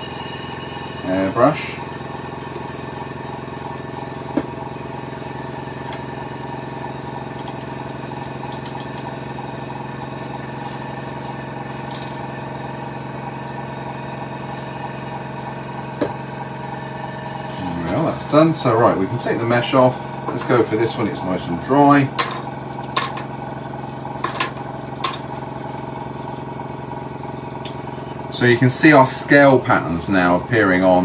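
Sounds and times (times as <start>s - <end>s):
airbrush hissing: 0.0s - 17.8s
workshop motor drone: 0.0s - 31.0s.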